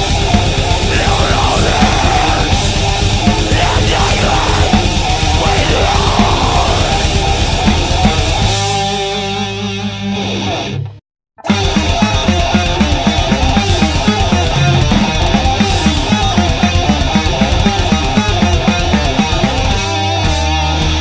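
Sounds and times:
drums playing: 0.0 - 9.0, 11.4 - 20.6
distorted guitars: 0.0 - 21.0
guitar chord ringing: 11.4 - 20.0.

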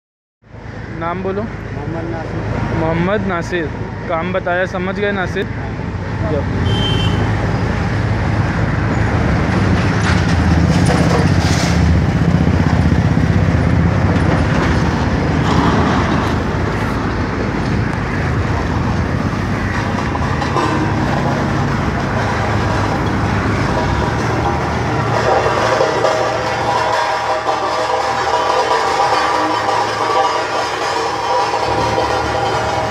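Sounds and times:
road roller diesel engine: 0.4 - 32.9.

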